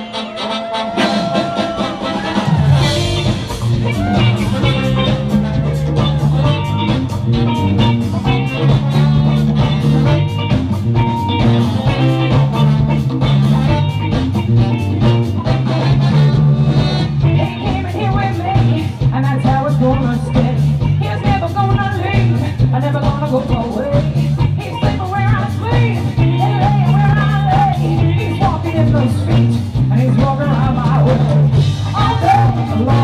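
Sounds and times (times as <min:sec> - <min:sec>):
band music with guitar: 0:00.0 - 0:33.0
heavy bass line: 0:00.0 - 0:33.0
person singing: 0:17.2 - 0:33.0.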